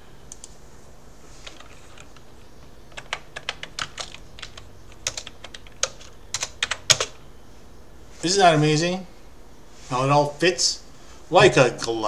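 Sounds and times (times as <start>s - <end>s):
computer keyboard typing: 1.4s - 2.3s, 2.9s - 7.2s.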